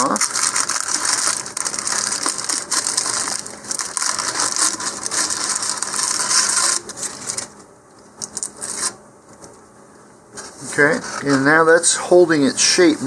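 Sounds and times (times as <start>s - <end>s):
plastic film crinkling: 0.0s - 7.6s, 8.2s - 9.0s
soft handling sounds: 10.3s - 13.0s.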